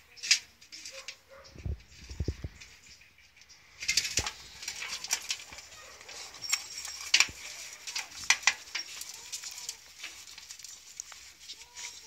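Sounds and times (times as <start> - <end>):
dogs crunching bones: 4.2 - 12.0.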